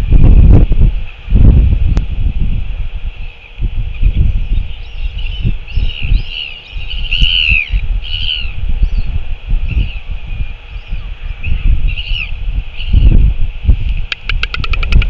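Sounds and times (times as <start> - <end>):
wind buffeting microphone: 0.0 - 15.0
small bird chirping: 14.0 - 15.0.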